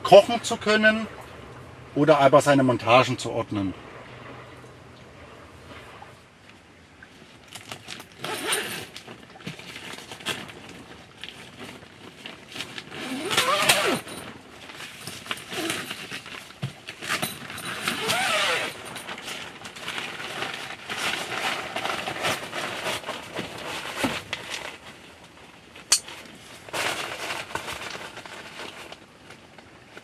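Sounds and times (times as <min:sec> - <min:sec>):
nylon fabric rustling: 0:07.1 - 0:30.0.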